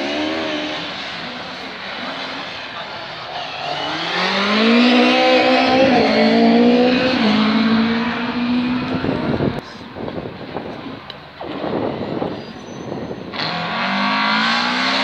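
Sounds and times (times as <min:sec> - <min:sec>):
car engine passing at high revs: 0:00.0 - 0:02.8, 0:03.4 - 0:09.6, 0:13.3 - 0:15.0.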